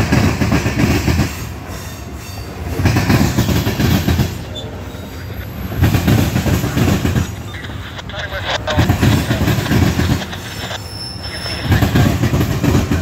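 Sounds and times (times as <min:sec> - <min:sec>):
freight train wheels on rail: 0:00.0 - 0:13.0.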